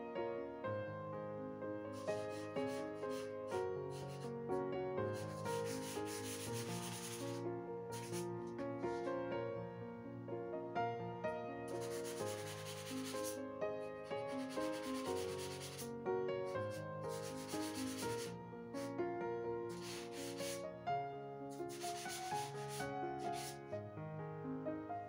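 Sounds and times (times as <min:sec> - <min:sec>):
background music: 0:00.0 - 0:25.0
pencil shading on paper: 0:02.0 - 0:03.3, 0:03.9 - 0:04.3, 0:05.1 - 0:08.3, 0:11.8 - 0:13.4, 0:14.2 - 0:15.9, 0:16.5 - 0:18.3, 0:19.7 - 0:20.6, 0:21.5 - 0:23.6.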